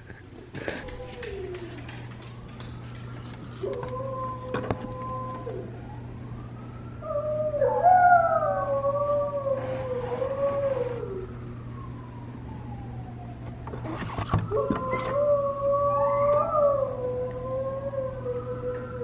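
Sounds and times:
husky howling: 0:00.6 - 0:02.4, 0:03.3 - 0:05.9, 0:07.0 - 0:11.4, 0:14.5 - 0:19.0.

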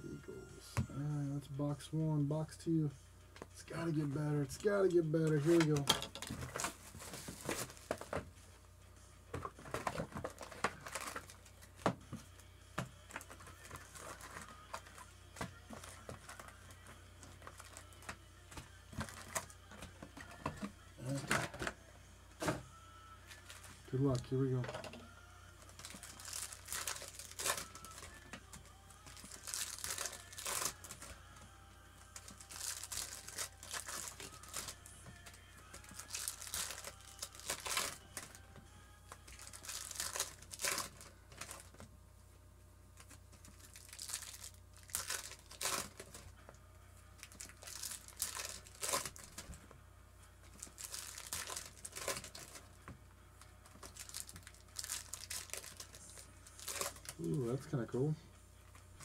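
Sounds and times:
foil wrappers crinkling and tearing: 0:03.8 - 0:08.2, 0:09.4 - 0:12.4, 0:13.0 - 0:18.2, 0:18.9 - 0:19.8, 0:25.6 - 0:31.4, 0:32.1 - 0:38.4, 0:39.1 - 0:41.8, 0:43.0 - 0:46.3, 0:47.2 - 0:49.6, 0:50.4 - 0:52.7, 0:53.6 - 0:57.9.

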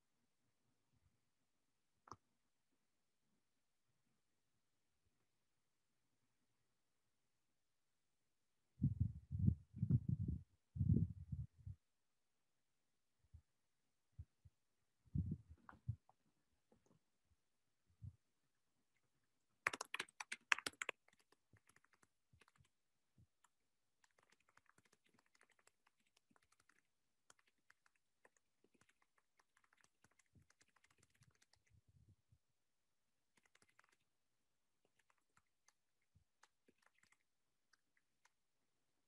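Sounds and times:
typing on computer keyboard: 0:19.7 - 0:22.7, 0:24.0 - 0:31.7, 0:33.4 - 0:34.0, 0:36.4 - 0:38.3.

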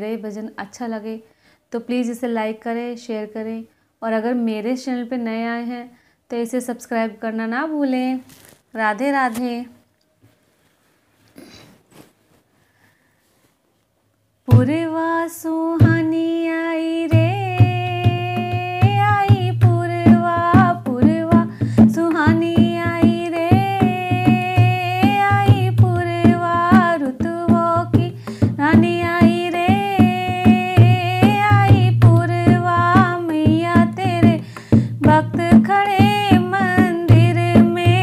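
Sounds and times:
hand drum rhythm: 0:14.5 - 0:14.9, 0:15.8 - 0:16.2, 0:17.1 - 0:38.0
woman singing: 0:14.5 - 0:38.0.

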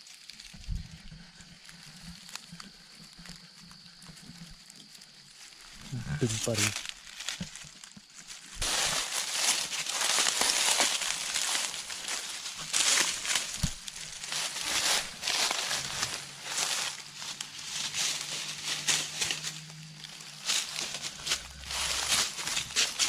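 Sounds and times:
footsteps crunching dry leaves: 0:00.0 - 0:23.0.

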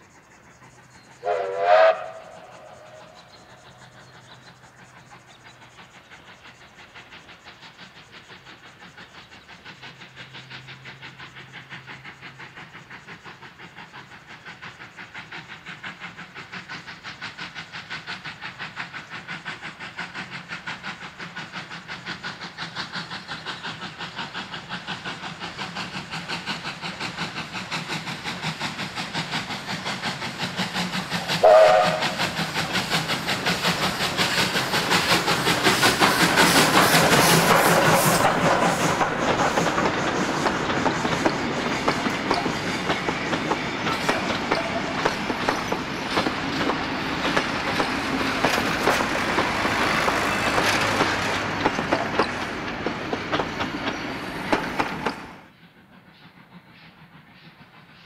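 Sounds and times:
steam locomotive exhaust beating: 0:00.0 - 0:58.0
steam whistle blast: 0:01.2 - 0:03.2, 0:31.4 - 0:32.3.

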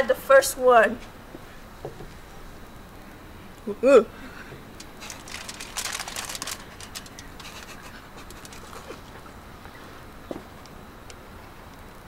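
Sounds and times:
aluminium foil crinkling: 0:04.8 - 0:09.2.

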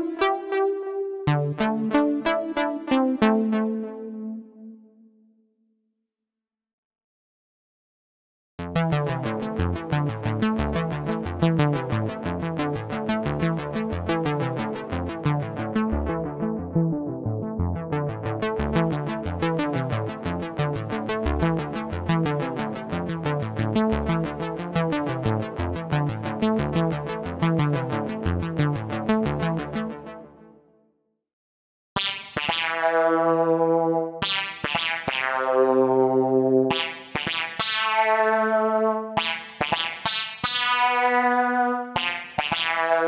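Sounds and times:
synthesizer arpeggio: 0:00.0 - 0:05.0, 0:08.7 - 0:30.4, 0:32.0 - 0:43.0.

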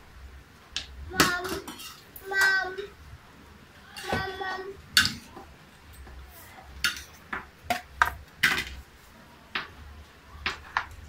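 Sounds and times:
utensils clinking against plates: 0:01.2 - 0:02.5, 0:06.8 - 0:07.2.

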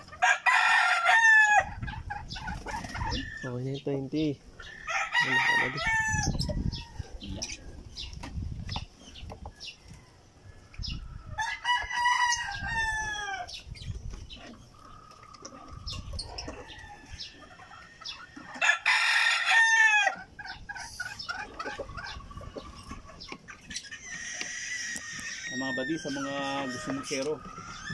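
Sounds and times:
rooster crowing: 0:00.2 - 0:01.7, 0:04.7 - 0:07.2, 0:11.4 - 0:13.5, 0:18.5 - 0:20.2.

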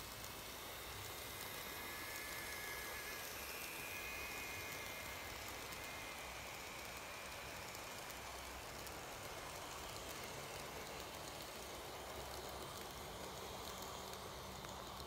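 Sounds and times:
model train wheels rolling: 0:00.0 - 0:15.0
high motor whine: 0:00.3 - 0:09.3.

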